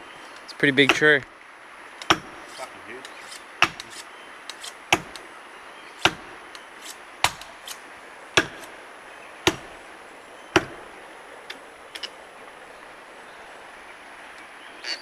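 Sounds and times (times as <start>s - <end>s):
axe chopping tree trunk: 0.8s - 1.1s, 2.0s - 5.3s, 6.0s - 7.8s, 8.4s - 8.8s, 9.4s - 9.8s, 10.5s - 10.9s.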